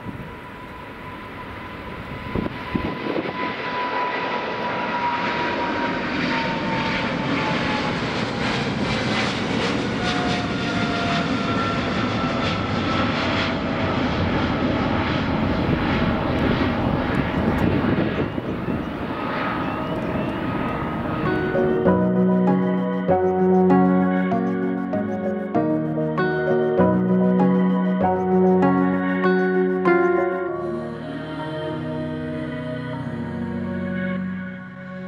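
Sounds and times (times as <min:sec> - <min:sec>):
jet aircraft taking off: 0:00.0 - 0:34.1.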